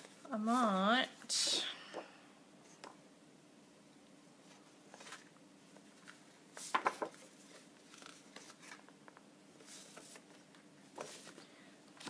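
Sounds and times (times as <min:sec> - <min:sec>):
paper sliding and rustling: 0:06.0 - 0:08.9, 0:09.6 - 0:11.4.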